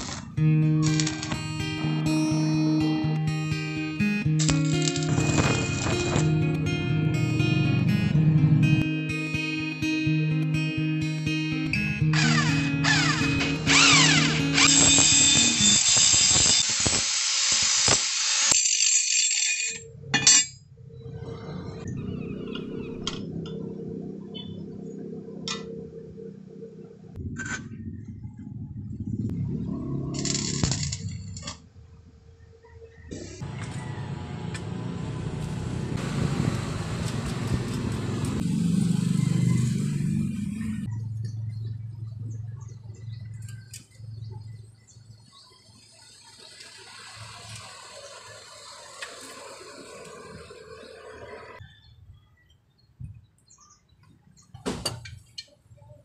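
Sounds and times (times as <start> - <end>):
angle grinder cutting steel: 0.0 - 2.6, 4.4 - 6.6, 12.1 - 19.8, 30.2 - 31.5
vehicle engine running: 4.5 - 9.0, 33.3 - 45.4.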